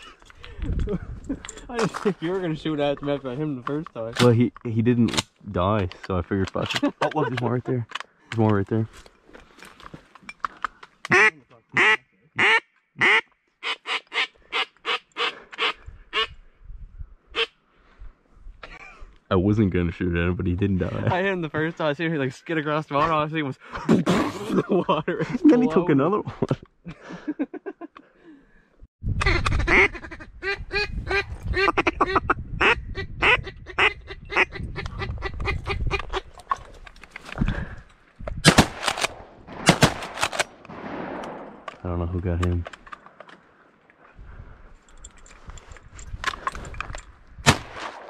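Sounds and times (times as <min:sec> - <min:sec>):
duck quacking: 0:11.1 - 0:16.3, 0:29.2 - 0:36.2.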